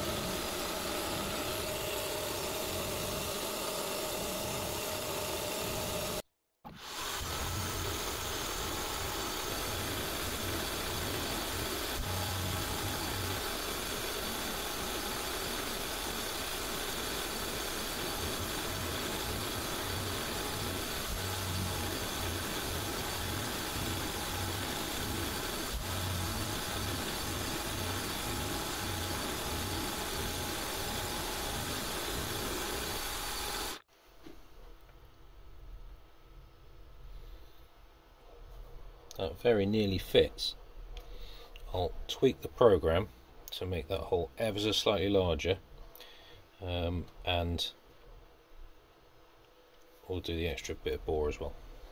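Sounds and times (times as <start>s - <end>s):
milling machine cutting metal: 0.0s - 33.8s.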